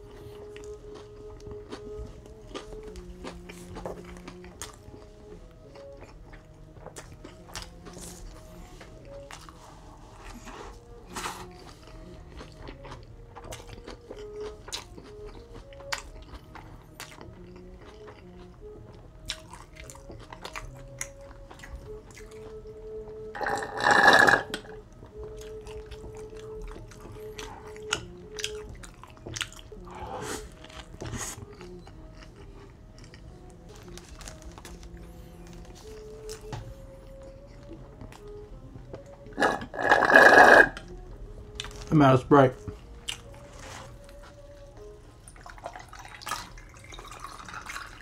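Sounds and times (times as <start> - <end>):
soft background music: 0.0 - 48.0
chewing and biting: 0.1 - 41.9, 42.6 - 48.0
slurp through a straw: 23.4 - 24.6, 39.4 - 40.8.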